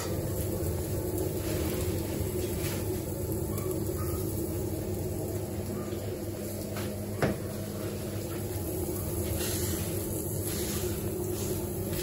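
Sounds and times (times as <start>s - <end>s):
low kitchen hum: 0.0s - 12.0s
cloth brushing grill grate: 1.4s - 3.1s, 7.7s - 12.0s.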